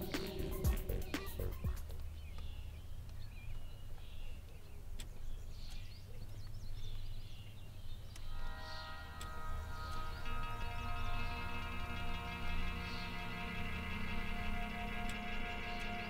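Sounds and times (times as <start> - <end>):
music: 0.0 - 2.0, 9.7 - 16.0
birds chirping: 0.0 - 16.0
low rumble: 8.4 - 16.0.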